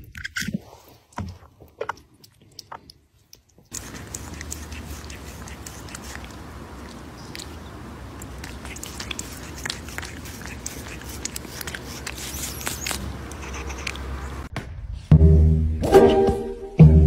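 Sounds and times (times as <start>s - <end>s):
cat licking its paw: 1.9s - 14.2s.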